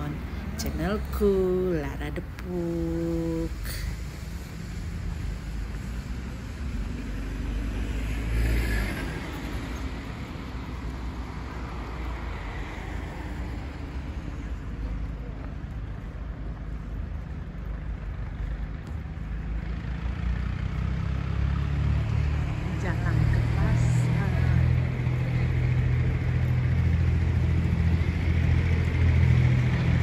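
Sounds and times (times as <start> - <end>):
road traffic: 0.0 - 30.0.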